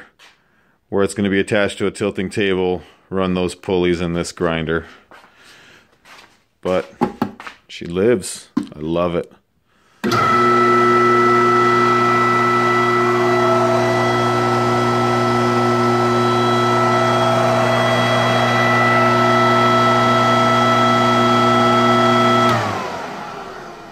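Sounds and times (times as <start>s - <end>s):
electric motor humming and whining: 10.0s - 23.9s.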